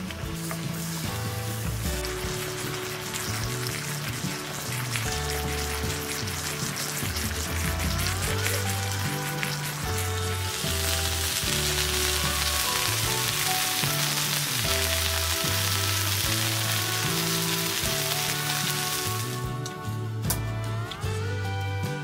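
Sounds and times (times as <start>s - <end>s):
beef sizzling in a hot pan: 0.0s - 20.0s
background music with bass line: 0.0s - 22.0s.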